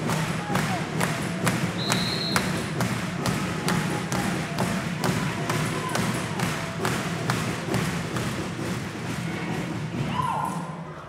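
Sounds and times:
big drum beating: 0.0 - 10.9
crowd noise in sports hall: 0.0 - 11.0
whistle blast: 1.8 - 2.6.

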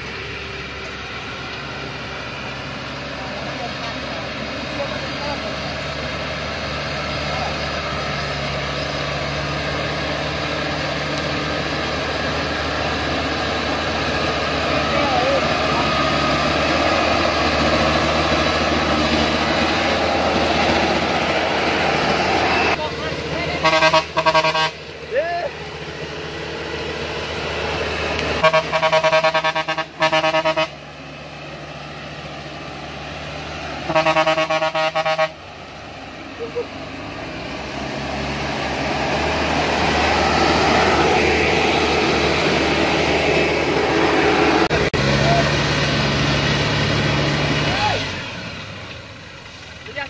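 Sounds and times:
truck diesel engine running: 0.0 - 50.0
fluttering truck horn blasts: 23.6 - 25.0, 28.3 - 30.9, 33.8 - 35.5.

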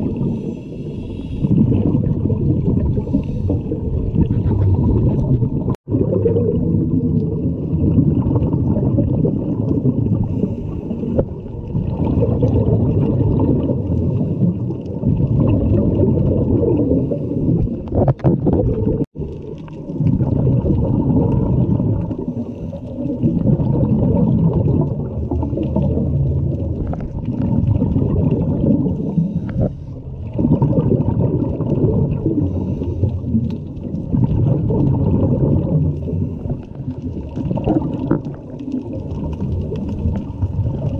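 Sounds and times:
underwater regulator breathing: 0.0 - 1.8, 2.9 - 5.3, 10.2 - 11.4, 28.9 - 30.1, 32.2 - 33.6
exhaled bubbles: 0.0 - 40.9.

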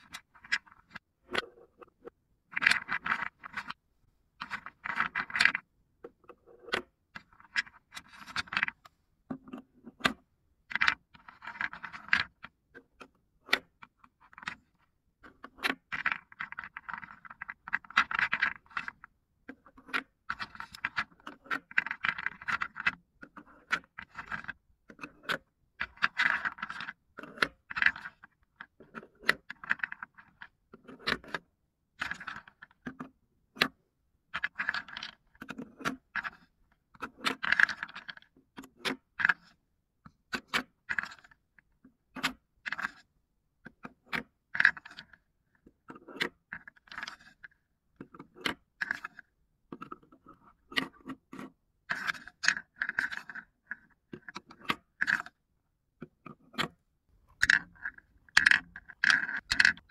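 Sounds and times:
wooden balls clacking together: 57.3 - 59.9.

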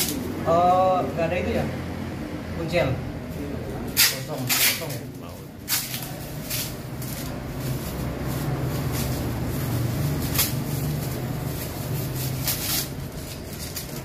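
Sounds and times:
plastic packaging crinkling: 5.6 - 14.0.

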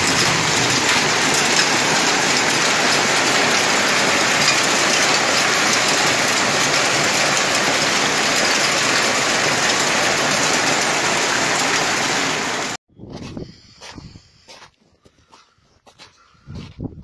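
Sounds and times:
hailstones rattling: 0.0 - 12.8
heavy rain pouring: 0.0 - 12.8.

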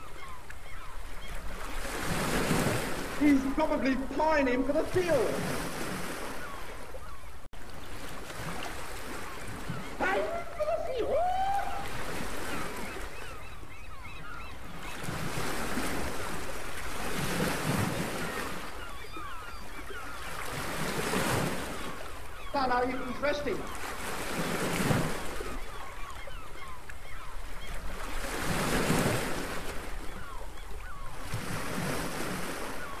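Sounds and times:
surf: 0.0 - 7.0, 7.8 - 33.0
birds chirping: 0.0 - 7.5, 9.0 - 17.0, 18.0 - 28.2, 29.8 - 33.0
wind: 0.0 - 33.0.

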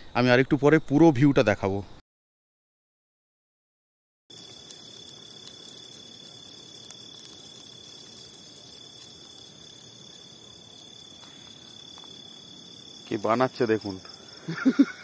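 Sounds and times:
crickets chirring: 0.0 - 2.0, 4.3 - 15.0
soft even hiss: 4.3 - 15.0.

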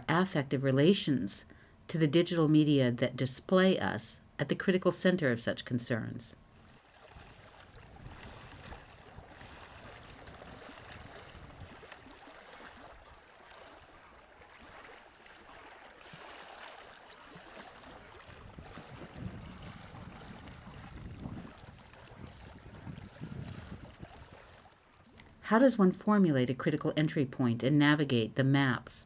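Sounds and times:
rushing water: 6.6 - 25.2.

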